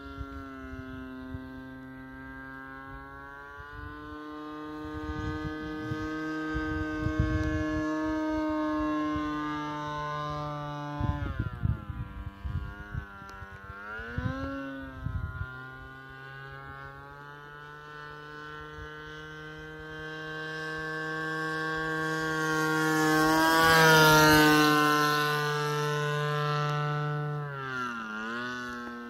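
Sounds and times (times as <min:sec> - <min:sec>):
model airplane engine buzzing: 0:00.0 - 0:29.0
wind gusts on microphone: 0:02.7 - 0:17.0.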